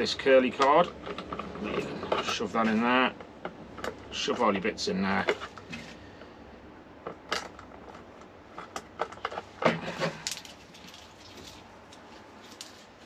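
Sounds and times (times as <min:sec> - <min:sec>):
rustling: 0:07.6 - 0:13.0.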